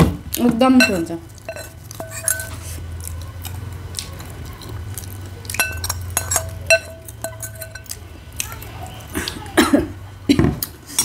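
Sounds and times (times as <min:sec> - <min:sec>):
spoon clinking on ceramic bowl: 0:00.8 - 0:02.6, 0:05.5 - 0:08.0
quiet chewing: 0:01.3 - 0:09.6.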